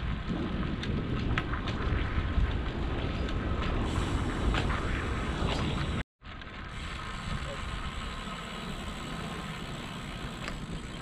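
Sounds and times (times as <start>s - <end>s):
wind rushing over microphone: 0.0s - 6.0s
bicycle tyres rolling on concrete: 0.0s - 11.0s.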